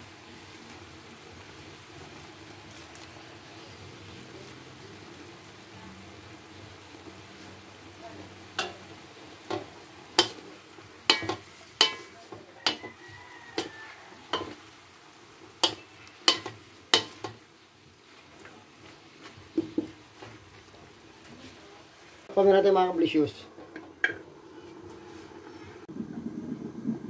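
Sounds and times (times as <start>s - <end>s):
faint frying sizzle: 0.0s - 27.0s
wooden spatula knocking on wok: 11.1s - 14.6s, 15.6s - 17.4s, 19.5s - 20.4s.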